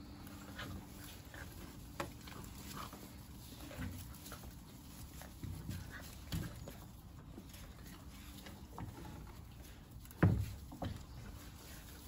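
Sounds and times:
puppies rustling on straw: 0.0 - 12.0.

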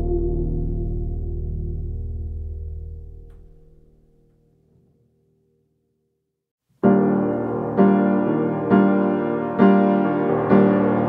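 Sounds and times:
background music chords: 0.0 - 3.9, 6.8 - 11.0.

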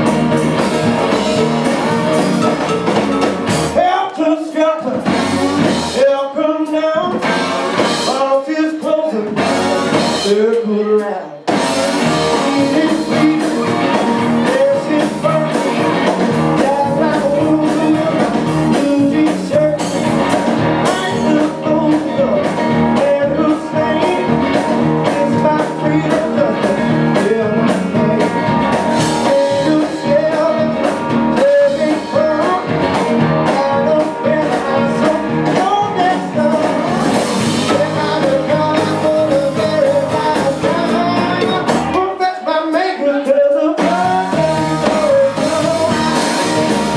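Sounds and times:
blues-rock band playing live: 0.0 - 46.9.

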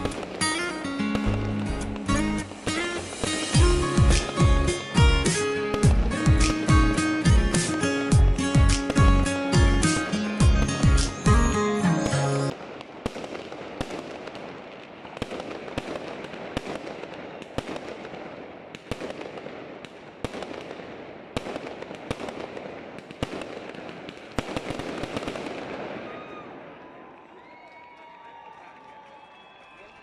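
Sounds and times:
firework crackling hiss: 0.0 - 6.7
music: 0.0 - 12.5
firework bangs: 0.0 - 27.2.

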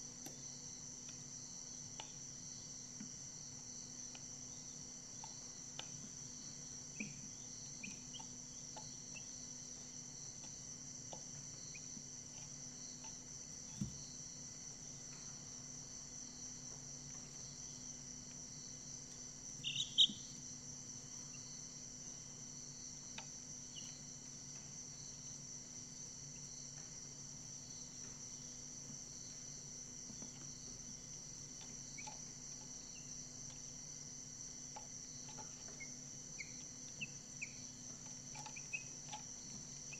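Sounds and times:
crickets trilling: 0.0 - 39.9
faint ticks: 1.9 - 2.2, 5.1 - 6.2, 28.0 - 33.9, 34.6 - 39.9
chick peeping: 7.8 - 9.3, 19.6 - 20.3, 31.9 - 32.2, 34.7 - 39.3.

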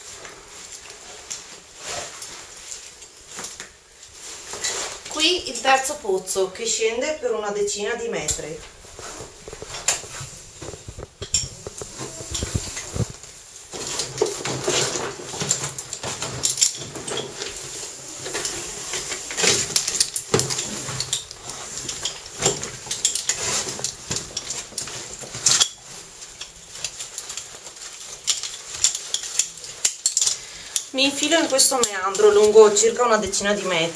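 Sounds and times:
gear and suit rustling: 0.0 - 33.9
metal climbing gear clinking: 8.3 - 33.9.

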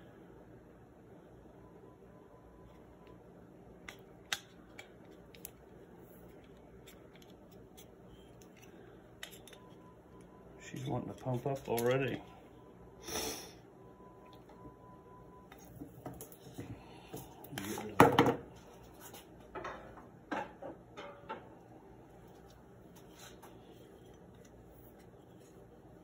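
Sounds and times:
metal rifle parts clicking: 8.3 - 9.8.

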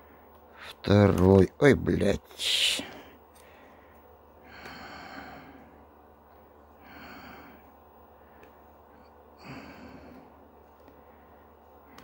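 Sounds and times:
man breathing out hard: 4.4 - 5.8, 6.8 - 7.6, 9.4 - 10.3.

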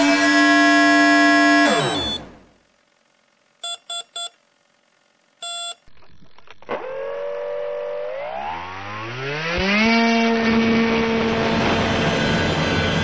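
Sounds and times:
electric motor whine: 0.0 - 2.3, 6.6 - 13.0
speed controller beeps: 1.7 - 2.3, 3.6 - 4.4, 5.4 - 5.9.

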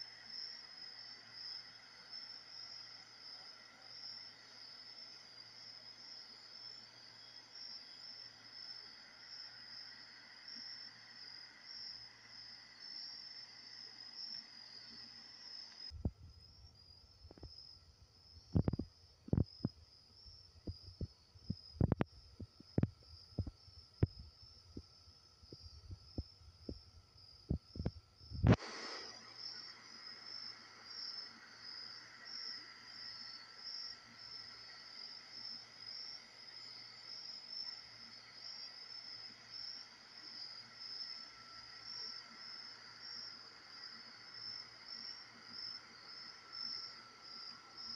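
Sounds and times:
crickets chirping: 0.0 - 47.9.

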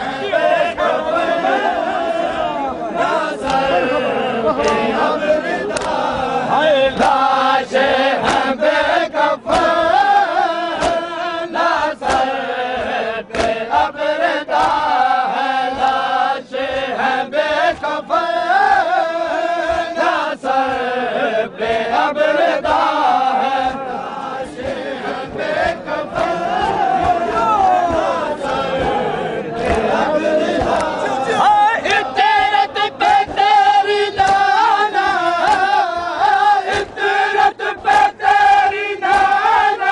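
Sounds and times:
men chanting in unison: 0.0 - 39.9
chest-beating hand slaps: 3.4 - 3.7, 4.6 - 5.0, 5.6 - 6.2, 6.9 - 18.0, 24.4 - 39.7.

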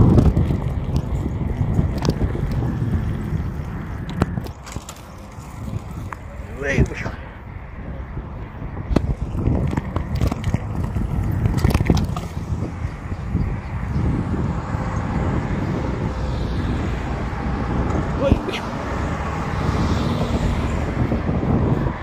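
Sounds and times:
bicycle road noise: 0.0 - 22.0
wind buffeting microphone: 0.0 - 22.0
sharp clicks and rattles: 8.9 - 13.0.

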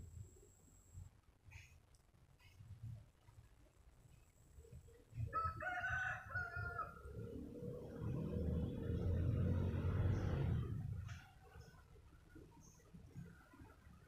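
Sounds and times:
faint hum: 0.0 - 7.3
low steady rumble: 0.0 - 14.0
rooster crowing: 5.3 - 7.3.

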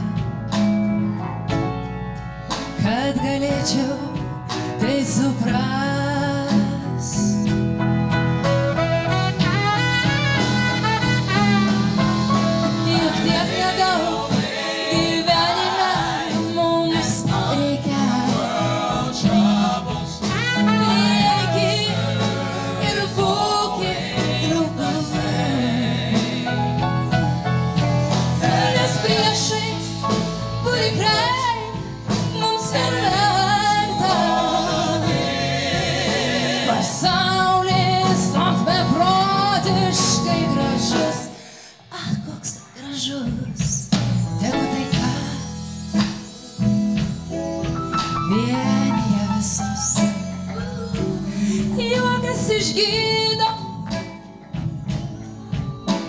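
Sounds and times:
band accompaniment: 0.0 - 42.3, 43.2 - 56.0
woman singing into a microphone: 2.8 - 7.5, 12.8 - 18.5, 28.8 - 30.0, 30.6 - 35.0, 36.7 - 45.6, 48.3 - 53.9.

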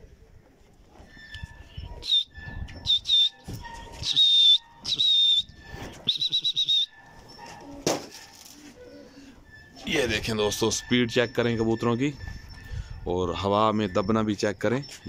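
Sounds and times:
shrill whistle blasts: 1.2 - 7.0.

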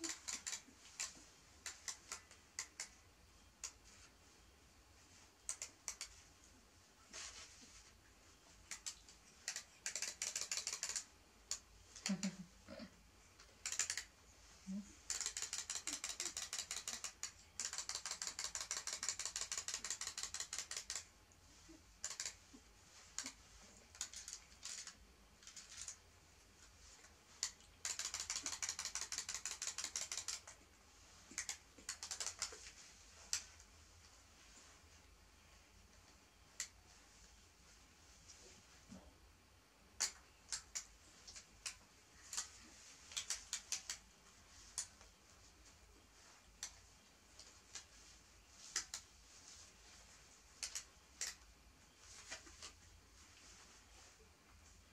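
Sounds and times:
wind-up toy clicking: 0.0 - 1.1, 8.8 - 12.2, 13.6 - 14.1, 15.1 - 21.0, 22.0 - 22.4, 27.4 - 30.6.

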